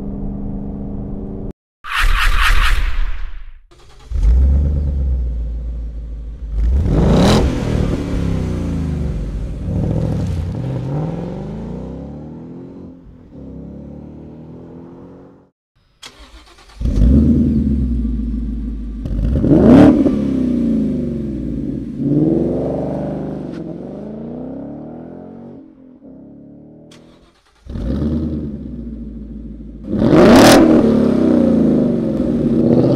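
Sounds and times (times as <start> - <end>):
car engine revving: 3.7 - 32.9.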